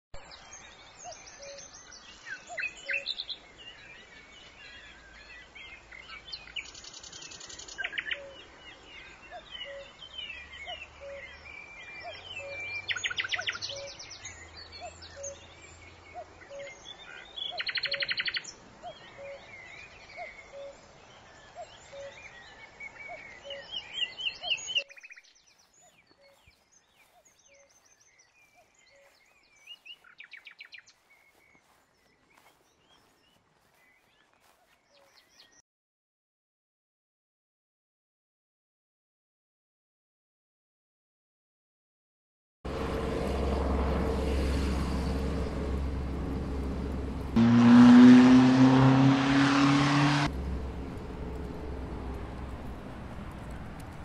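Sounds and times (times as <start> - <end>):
birds chirping: 0.2 - 35.6.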